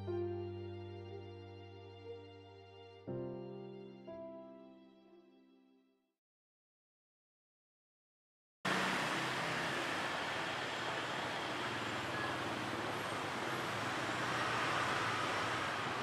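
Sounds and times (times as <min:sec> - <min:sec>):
street traffic noise: 0:08.7 - 0:16.0.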